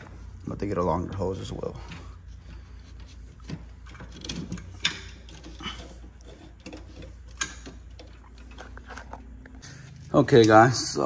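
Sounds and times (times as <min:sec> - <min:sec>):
clicks knocks and rattles of fittings: 0:00.9 - 0:09.2.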